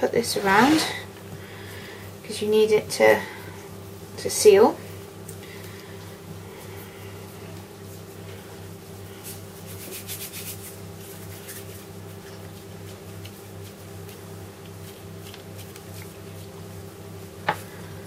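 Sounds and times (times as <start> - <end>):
steady low hum: 0.0 - 18.0
rubbing and handling noises: 6.5 - 16.7.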